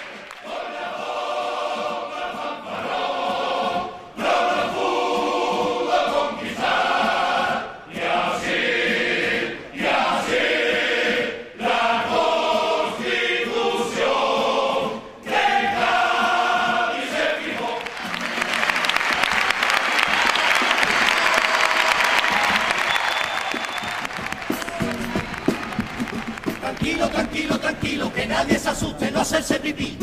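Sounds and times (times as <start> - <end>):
men singing in chorus: 0.0 - 17.9, 26.6 - 30.0.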